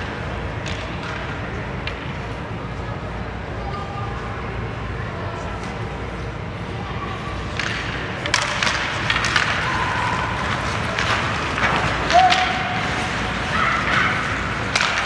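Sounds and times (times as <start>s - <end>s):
hockey sticks and puck clacking: 0.0s - 2.7s, 7.3s - 15.0s
skate blades scraping ice: 7.4s - 15.0s.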